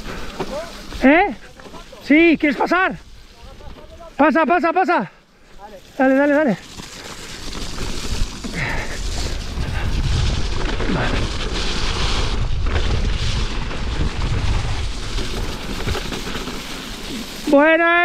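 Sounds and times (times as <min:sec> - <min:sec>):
bike rattling over bumps: 0:00.0 - 0:04.5, 0:05.5 - 0:18.0
tyres rolling on wet dirt: 0:00.0 - 0:04.5, 0:05.3 - 0:18.0
wind buffeting microphone: 0:08.2 - 0:15.9.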